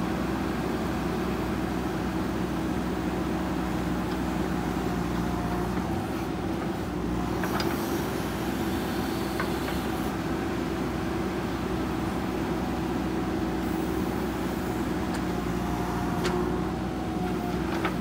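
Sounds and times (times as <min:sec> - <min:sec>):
diesel engine running under load: 0:00.0 - 0:18.0
backhoe digging soil: 0:03.7 - 0:10.5, 0:13.4 - 0:18.0.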